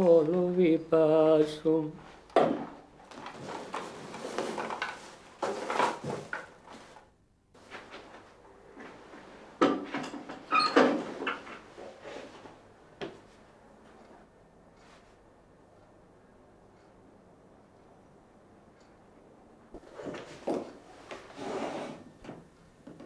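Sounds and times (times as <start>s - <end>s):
objects handled on a desk: 2.4s - 7.0s.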